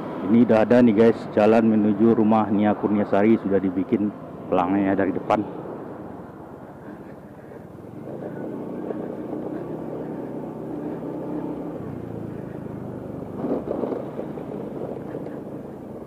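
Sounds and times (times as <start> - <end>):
road and wind noise: 0.0 - 16.0
vehicle engine running: 4.4 - 16.0.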